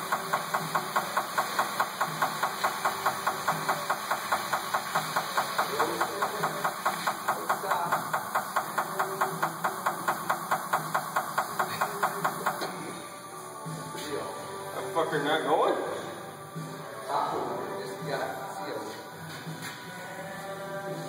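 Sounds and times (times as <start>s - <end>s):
air machinery pulsing: 0.0s - 13.8s.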